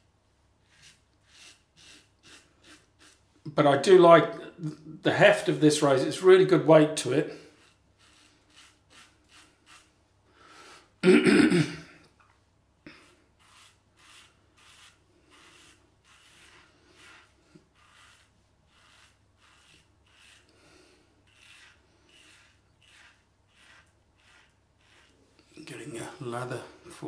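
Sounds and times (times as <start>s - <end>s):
razor rasping through stubble: 0.7s - 3.2s, 7.4s - 9.9s, 12.9s - 27.0s
man clearing throat: 11.0s - 12.0s.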